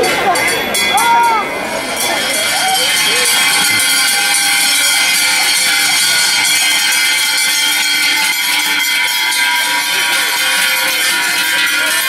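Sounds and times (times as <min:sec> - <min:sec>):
cowbells clanging: 0:00.0 - 0:12.0.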